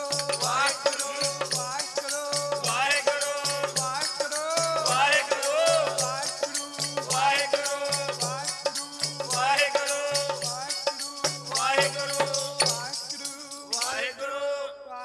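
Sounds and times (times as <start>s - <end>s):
dholak drum beat: 0.0s - 14.0s
hand rattle shaken: 0.0s - 14.2s
man singing: 0.0s - 15.0s.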